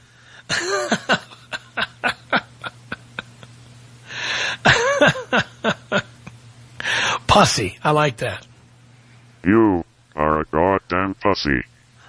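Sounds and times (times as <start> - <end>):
person laughing: 0.5 - 3.6, 4.6 - 6.4
breathy gasp: 4.0 - 4.6, 6.8 - 7.2.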